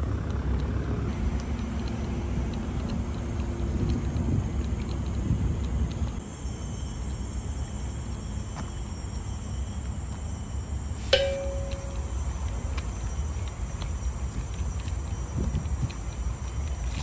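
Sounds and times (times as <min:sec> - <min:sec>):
low outdoor rumble: 0:00.0 - 0:17.0
high insect drone: 0:01.1 - 0:17.0
sharp metallic ping: 0:11.0 - 0:12.6.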